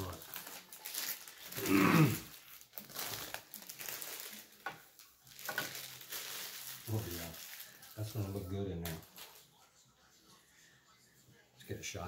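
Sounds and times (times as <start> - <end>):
plastic bag crinkling: 0.0 - 9.5.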